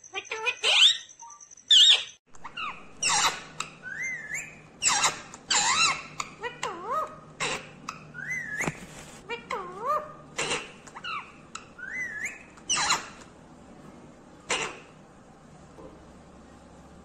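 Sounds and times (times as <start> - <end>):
parakeet whistled calls: 0.0 - 6.2, 8.2 - 8.8, 11.8 - 13.2.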